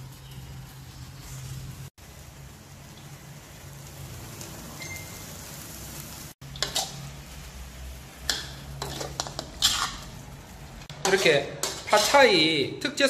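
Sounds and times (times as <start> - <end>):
noodles sizzling in a wok: 0.0 - 12.8
metal spatula scraping a wok: 6.5 - 7.2, 8.3 - 12.5.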